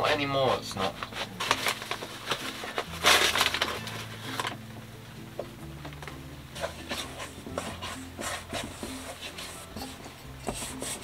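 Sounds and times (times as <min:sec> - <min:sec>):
paper bag rustling: 0:00.6 - 0:04.6
hand mixing dough in a bowl: 0:06.6 - 0:11.0.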